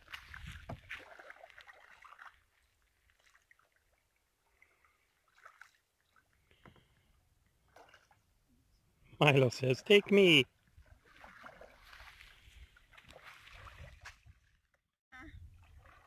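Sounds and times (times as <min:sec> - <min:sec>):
faint water splashes and trickles: 0:00.0 - 0:16.0.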